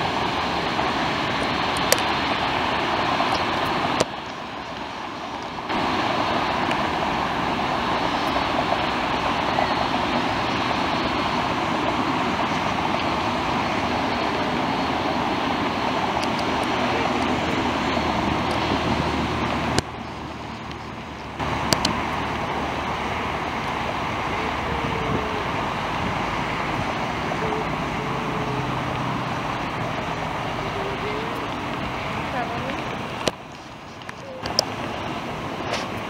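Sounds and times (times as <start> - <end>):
airport and road traffic noise: 0.0 - 36.0
jet engine noise: 0.0 - 36.0.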